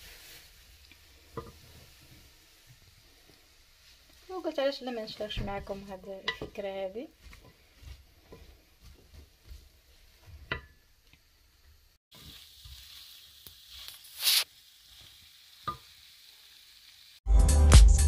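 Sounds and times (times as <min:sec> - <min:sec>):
vegetables sizzling: 0:00.0 - 0:17.2
spatula scraping a pot: 0:05.6 - 0:10.6.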